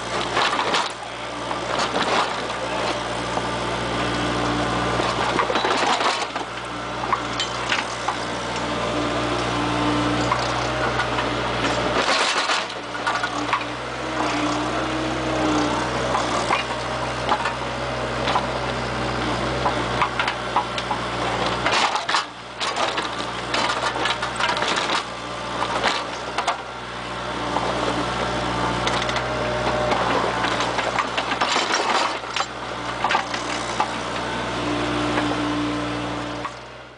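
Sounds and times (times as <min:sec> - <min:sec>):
diesel engine running: 0:00.0 - 0:36.9
clanks and rattles: 0:05.0 - 0:06.5, 0:10.3 - 0:13.7, 0:28.8 - 0:34.0.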